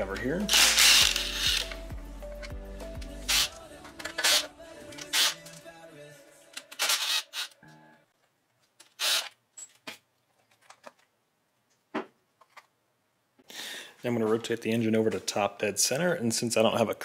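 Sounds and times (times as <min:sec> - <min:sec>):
impact driver bursts: 0:00.5 - 0:01.6.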